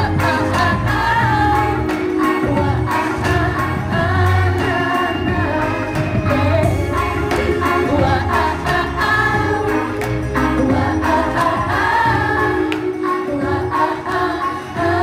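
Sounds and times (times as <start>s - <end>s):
woman singing into a microphone: 0.0s - 9.9s
backing track with steady beat: 0.0s - 15.0s.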